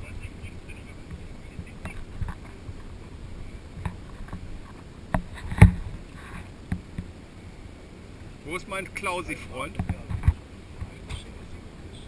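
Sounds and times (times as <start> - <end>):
light knocks and taps: 9.6 - 11.3.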